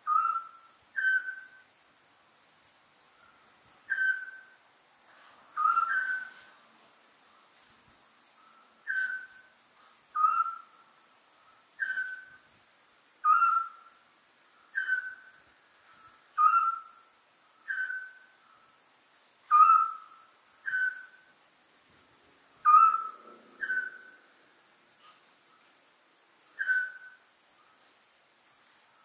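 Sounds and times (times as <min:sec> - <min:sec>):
owls whistled calls: 0:00.0 - 0:01.6, 0:03.9 - 0:04.6, 0:05.6 - 0:06.5, 0:08.8 - 0:09.5, 0:10.2 - 0:10.8, 0:11.8 - 0:12.4, 0:13.2 - 0:13.9, 0:14.7 - 0:15.4, 0:16.4 - 0:17.0, 0:17.6 - 0:18.4, 0:19.5 - 0:21.2, 0:22.6 - 0:24.2, 0:26.5 - 0:27.2.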